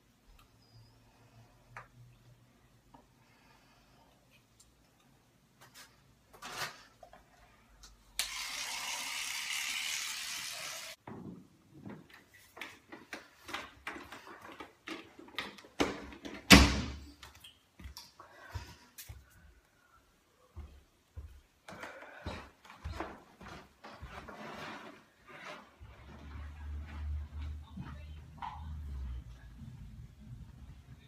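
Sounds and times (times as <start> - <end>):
footsteps: 20.5 - 31.0.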